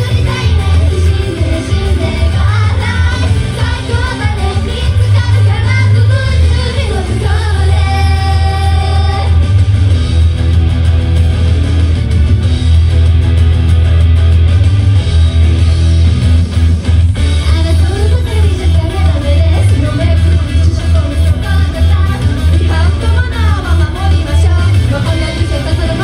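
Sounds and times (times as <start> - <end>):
person singing: 0.0 - 9.4, 17.4 - 26.0
electric guitar: 0.0 - 26.0
heavy bass: 0.0 - 26.0
live rock band playing: 0.0 - 26.0.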